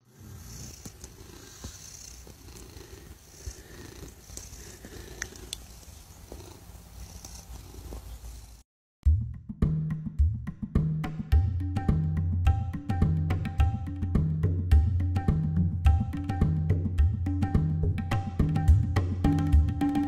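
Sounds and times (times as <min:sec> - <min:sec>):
cat purring: 0:00.0 - 0:08.6
faint clicks: 0:04.1 - 0:06.5.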